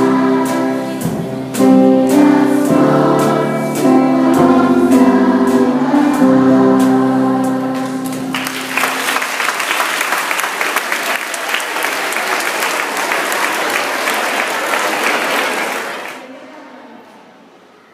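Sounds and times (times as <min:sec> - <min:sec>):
held chord of children's song: 0:00.0 - 0:10.6
crowd applauding: 0:08.0 - 0:16.2.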